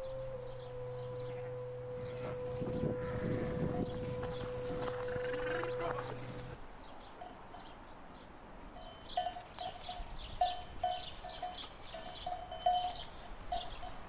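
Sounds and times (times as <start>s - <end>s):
livestock bells clanking: 2.0s - 6.6s, 8.8s - 14.0s.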